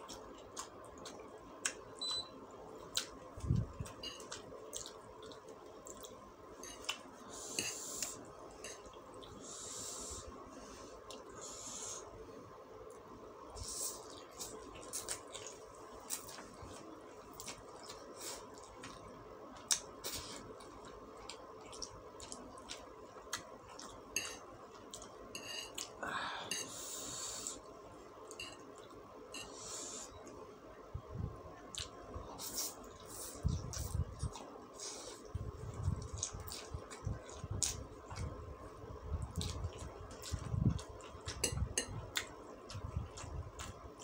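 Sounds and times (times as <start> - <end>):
faint steady hum: 0.0 - 44.0
chewing noodles: 2.8 - 7.1, 31.7 - 38.3
person breathing: 9.4 - 12.1, 26.0 - 27.6.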